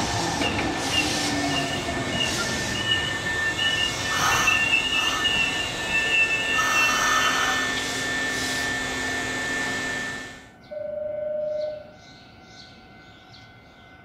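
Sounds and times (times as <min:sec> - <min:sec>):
train wheels squealing on rails: 0:00.0 - 0:09.6
steady high whine: 0:00.0 - 0:12.0
train running noise: 0:00.0 - 0:14.0.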